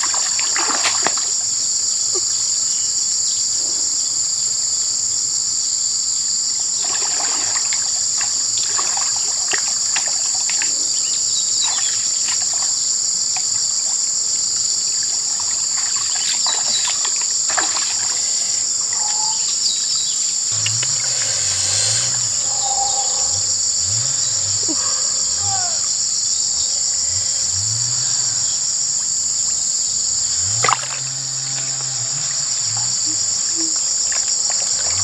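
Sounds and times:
splashing in muddy water: 0.0 - 1.4, 6.8 - 14.0, 15.0 - 19.6, 20.3 - 26.0, 30.2 - 35.0
insects chorus: 0.0 - 35.0.

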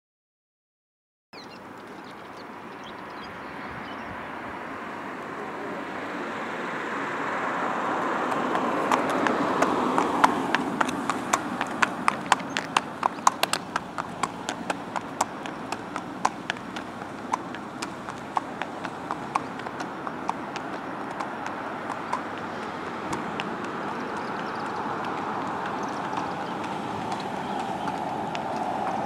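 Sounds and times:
traffic hum: 1.4 - 29.0
hooves clip-clopping on asphalt: 7.4 - 29.0.

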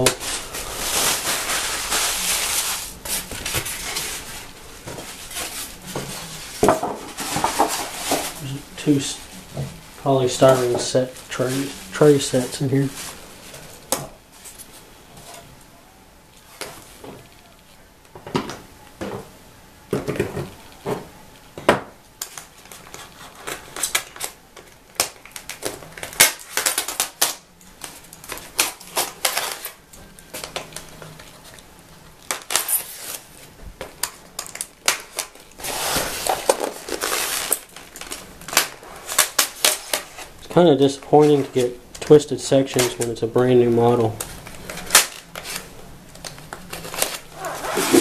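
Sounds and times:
foam trays creaking and scraping: 0.0 - 15.5, 32.2 - 48.0.

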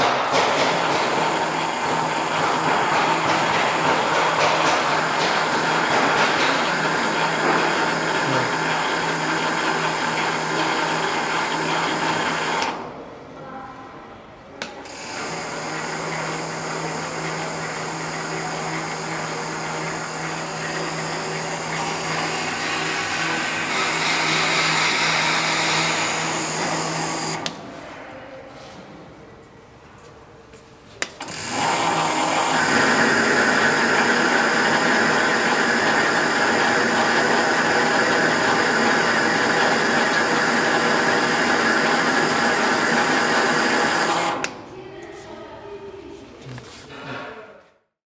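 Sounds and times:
metal lathe cutting metal: 0.3 - 12.8, 14.9 - 27.5, 31.2 - 44.5.

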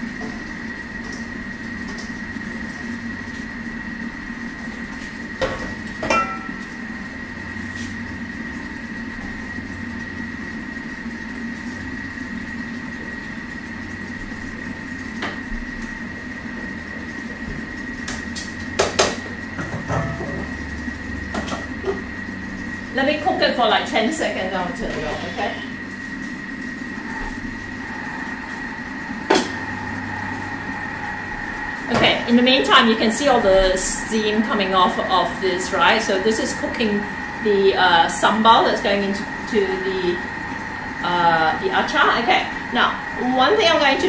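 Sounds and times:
kitchen machine humming: 0.0 - 44.0
metal bowls clanking: 6.0 - 6.7.

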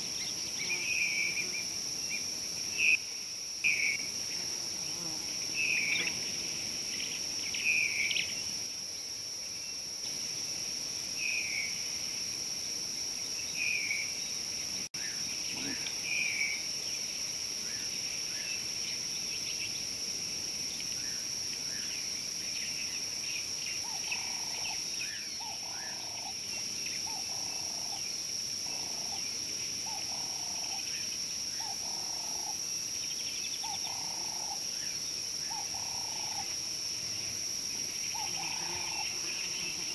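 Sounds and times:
high-pitched insect drone: 22.8 - 39.9.

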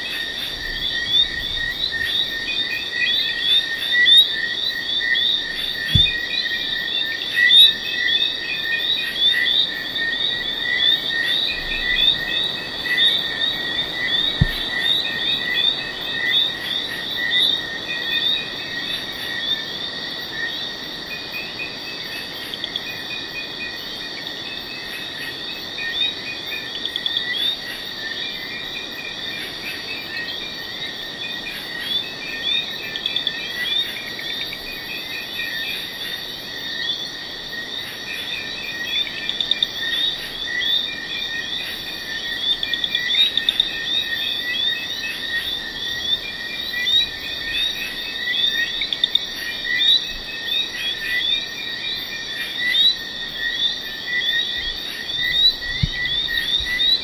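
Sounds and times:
frogs chirping: 0.0 - 57.0
insect trill: 0.0 - 57.0
low thump: 5.9 - 6.2, 14.4 - 14.7, 55.7 - 56.9.

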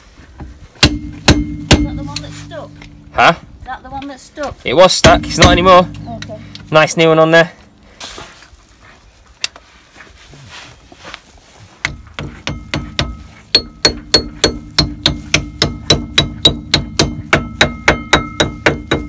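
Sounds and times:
hammer tapping metal: 0.8 - 3.4, 5.0 - 7.5, 11.8 - 19.0.

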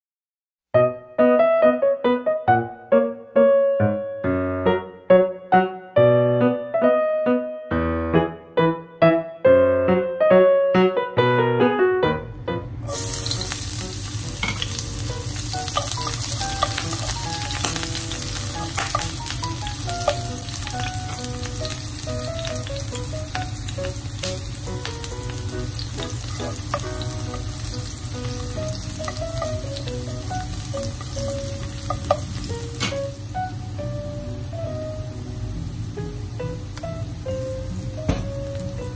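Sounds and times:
garlic sizzling in hot oil: 12.8 - 33.4, 36.0 - 38.9.

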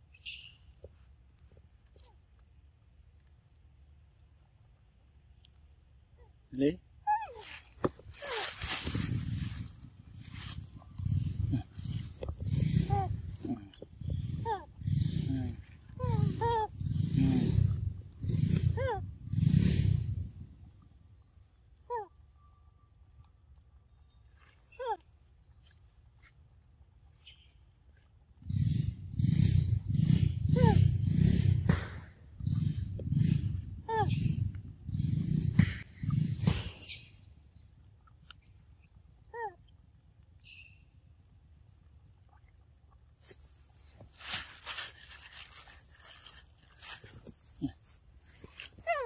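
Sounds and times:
faint high insect drone: 0.0 - 49.0.

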